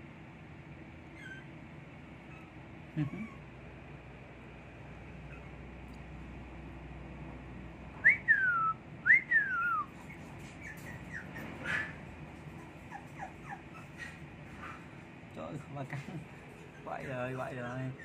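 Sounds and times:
puppy whimpering cries: 1.1 - 3.5, 5.2 - 5.7, 9.5 - 14.3, 16.3 - 18.0
faint short squeaks: 10.0 - 12.0.

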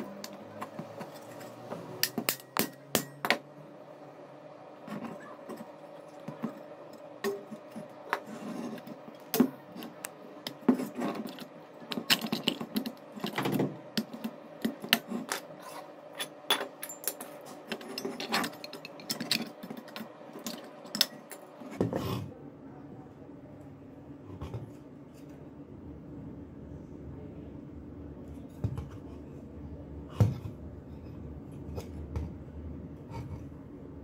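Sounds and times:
pliers tapping sheet steel: 1.0 - 3.4.

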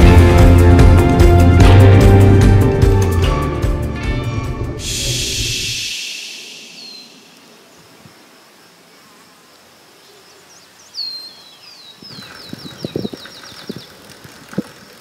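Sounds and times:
songbird whistling: 4.8 - 7.8.

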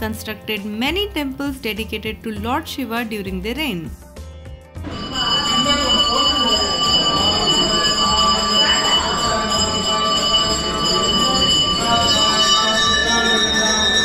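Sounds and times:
sustained high tones: 4.8 - 14.0.

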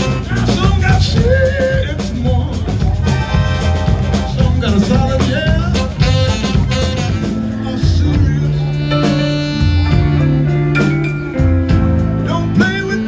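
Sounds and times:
saxophone: 0.0 - 1.1, 2.8 - 11.4
accordion: 0.0 - 13.0
drum kit: 0.0 - 13.0
keyboard: 0.0 - 13.0.

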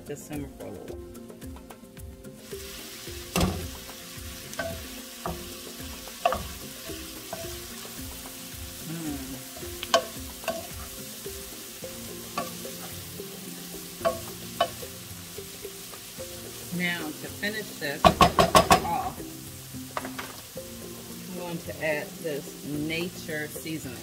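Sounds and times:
vegetables sizzling in a skillet: 0.1 - 24.0
wooden spoon scraping a pan: 2.4 - 11.5.

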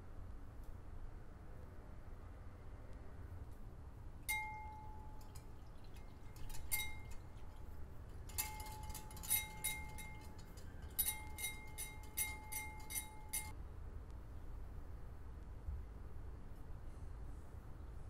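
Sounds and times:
glass bowl ringing: 4.3 - 13.5
whisk clicking against glass bowl: 4.3 - 13.5.

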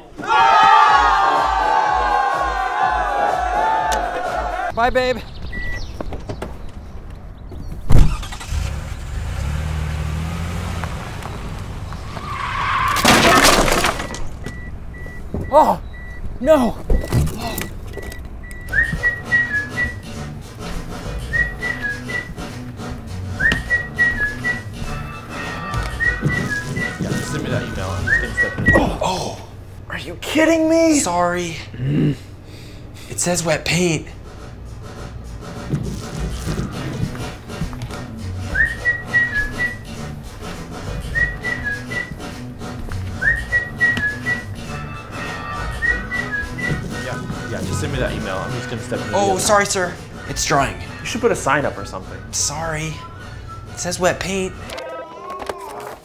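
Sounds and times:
light rhythmic music backing: 18.2 - 28.7, 33.3 - 55.2
person whistling a tune: 18.6 - 20.0, 21.2 - 22.4, 23.4 - 24.8, 25.9 - 27.1, 28.0 - 28.8, 38.4 - 39.9, 41.0 - 42.2, 43.2 - 44.6, 45.5 - 47.2
whistled melody: 18.6 - 20.3, 21.1 - 22.6, 23.2 - 28.8, 38.3 - 40.2, 40.9 - 55.2
light bass line: 35.4 - 54.7.

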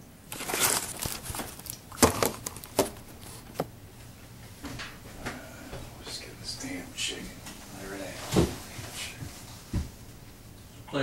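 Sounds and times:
rustling: 0.3 - 3.8.

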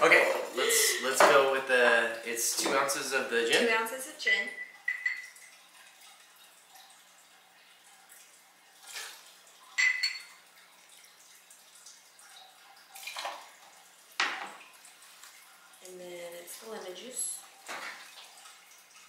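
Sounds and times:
liquid trickling and splashing: 0.0 - 19.0
ringing glass clink: 4.4 - 5.3, 9.8 - 10.3.

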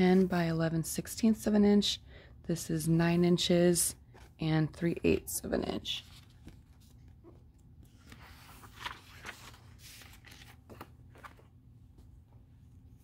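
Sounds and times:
books rustling and sliding: 6.0 - 11.6.

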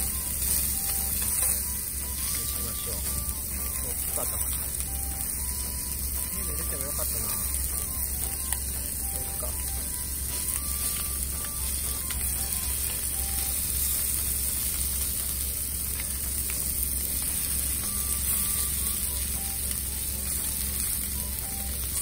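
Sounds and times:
chicken sizzling in oil: 0.0 - 22.0
chopsticks ticking on pan: 0.0 - 22.0.

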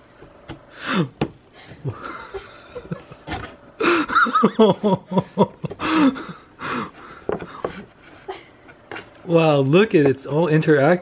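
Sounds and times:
man laughing: 1.6 - 6.9.

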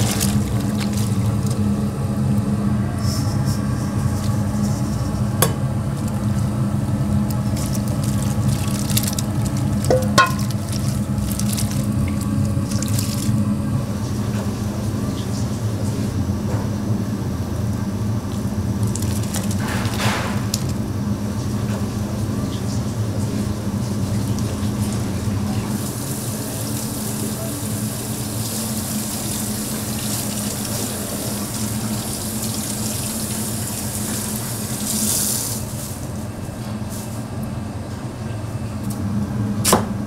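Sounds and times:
low mechanical hum: 0.0 - 40.0
dishes and utensils clinking: 9.9 - 10.5.

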